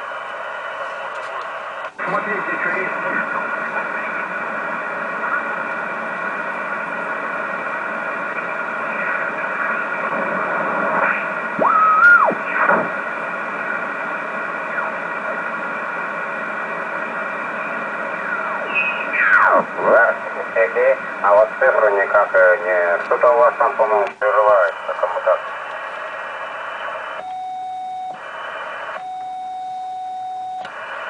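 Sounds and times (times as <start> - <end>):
radio receiver hiss: 0.0 - 27.2, 30.6 - 31.0
radio whistles sweeping: 10.9 - 12.9, 18.6 - 19.6.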